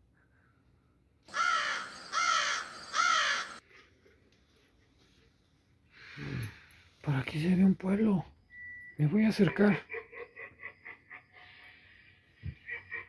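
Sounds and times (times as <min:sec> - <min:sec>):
crow cawing: 0:01.3 - 0:03.6.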